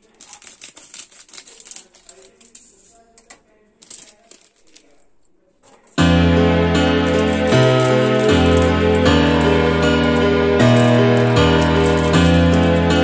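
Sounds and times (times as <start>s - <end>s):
scissors snipping plastic: 0.0s - 6.0s
plastic pouch crinkling: 0.0s - 13.0s.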